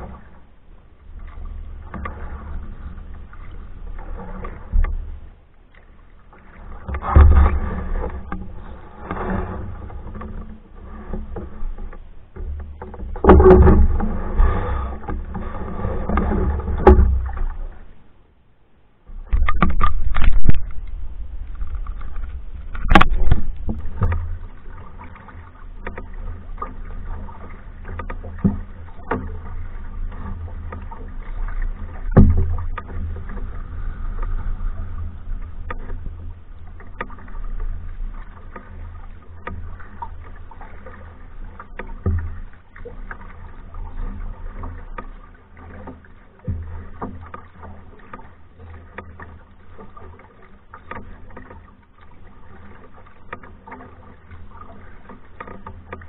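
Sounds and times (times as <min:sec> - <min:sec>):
paddle strokes in water: 0:00.0 - 0:56.0
sharp knocks and clicks: 0:11.1 - 0:17.6, 0:19.1 - 0:25.2, 0:30.1 - 0:33.5
low rumble: 0:19.1 - 0:38.4.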